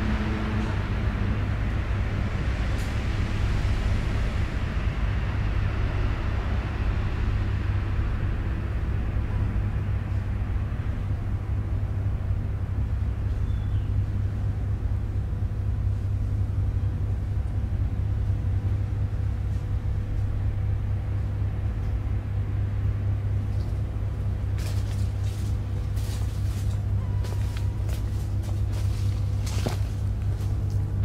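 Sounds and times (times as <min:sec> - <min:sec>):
faint hum: 0:00.0 - 0:31.0
low rumble: 0:00.0 - 0:31.0.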